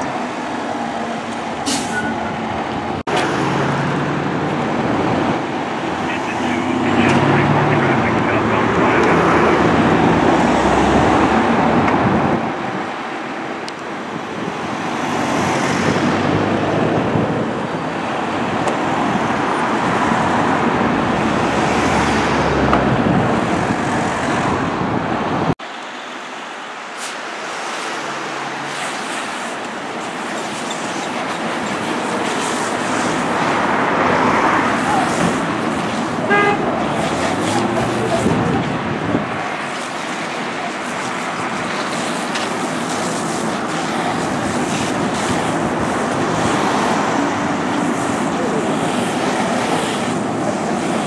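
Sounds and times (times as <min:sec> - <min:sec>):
hose water spraying: 0:26.9 - 0:33.6, 0:35.0 - 0:38.5, 0:39.5 - 0:51.0
fire engine pump running: 0:34.9 - 0:46.4.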